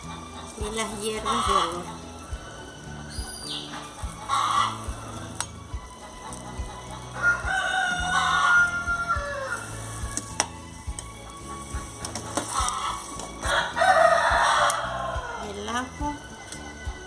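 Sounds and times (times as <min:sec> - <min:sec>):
pot boiling: 0:00.0 - 0:17.0
rooster crowing: 0:07.1 - 0:09.9, 0:12.6 - 0:15.4.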